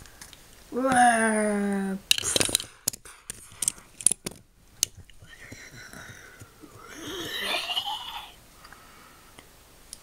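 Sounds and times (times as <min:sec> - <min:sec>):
plastic toy figures clicking: 0:02.1 - 0:05.0.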